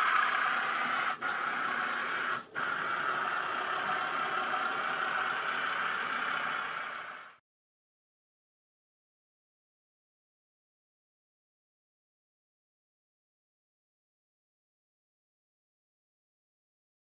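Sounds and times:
model train whirring: 0.0s - 7.4s.

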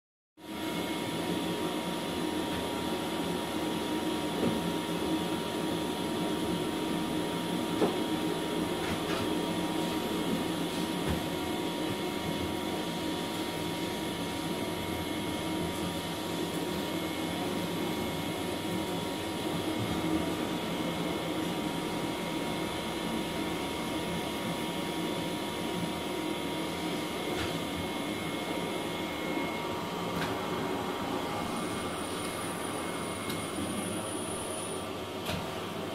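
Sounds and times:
machine drone with whining: 26.3s - 34.9s.

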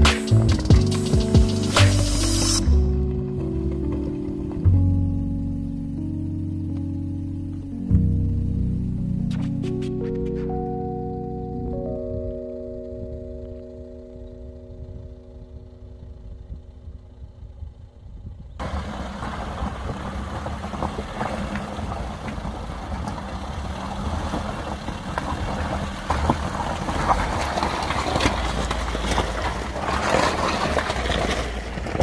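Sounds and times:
car engine running low: 0.0s - 32.0s
tyres crunching and splashing on pebbles: 18.6s - 32.0s.

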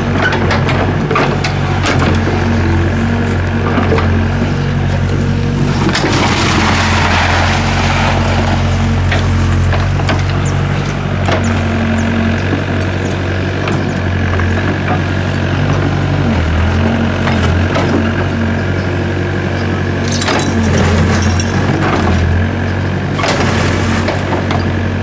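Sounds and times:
excavator diesel engine running: 0.0s - 25.0s
bucket knocking and scraping dirt: 5.6s - 10.5s, 23.2s - 24.8s.

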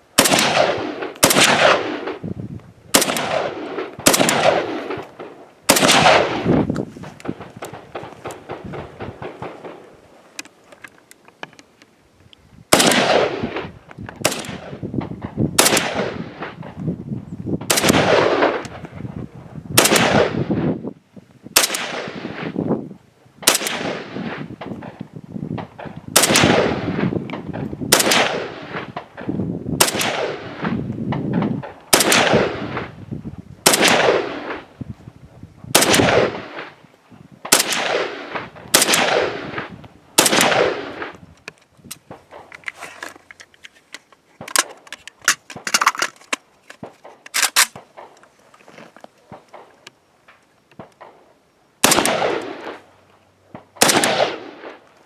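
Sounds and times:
rifle single shots echoing: 0.1s - 2.3s, 2.9s - 10.0s, 12.7s - 16.8s, 17.6s - 18.9s, 19.8s - 20.8s, 21.5s - 22.6s, 23.4s - 25.0s, 25.6s - 33.0s, 33.6s - 34.8s, 35.7s - 36.8s, 37.4s - 41.2s, 50.8s - 52.9s, 53.5s - 54.9s.

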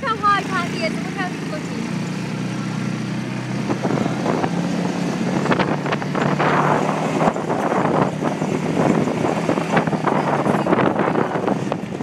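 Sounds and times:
buggy engine running: 0.0s - 12.0s
wind on the microphone: 3.6s - 12.0s.

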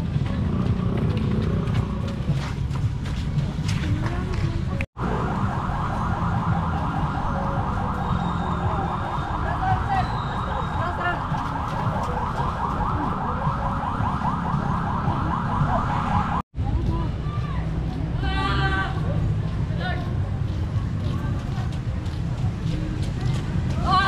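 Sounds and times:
electronic siren yelping: 5.0s - 16.4s.

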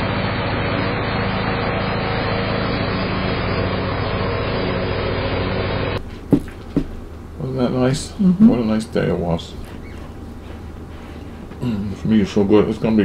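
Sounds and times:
riding lawn mower engine: 0.0s - 6.0s.

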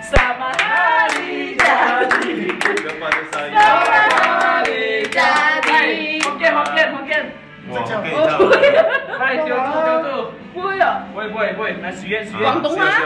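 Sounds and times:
group clapping hands: 0.0s - 7.3s
group singing: 0.0s - 7.4s.

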